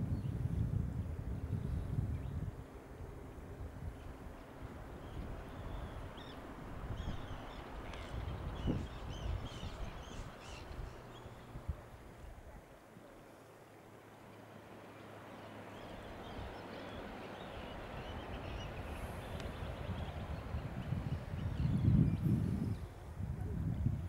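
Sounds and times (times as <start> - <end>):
faint bird calls: 7.0 - 11.5.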